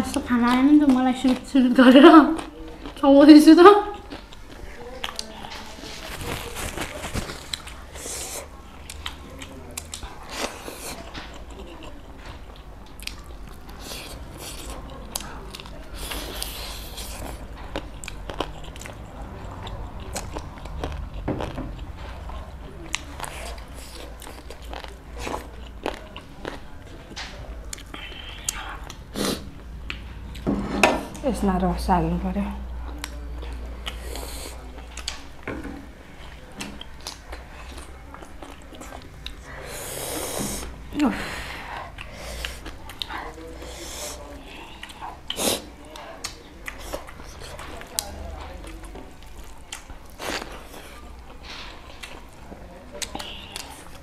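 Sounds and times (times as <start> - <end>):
wet chewing and mouth smacks: 3.9 - 30.4, 32.8 - 35.5, 41.8 - 54.0
fingers mixing food on metal plates: 40.4 - 54.0.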